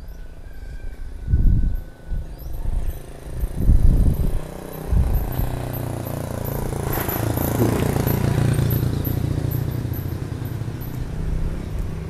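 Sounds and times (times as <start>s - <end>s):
vehicle engine running: 2.8s - 12.0s.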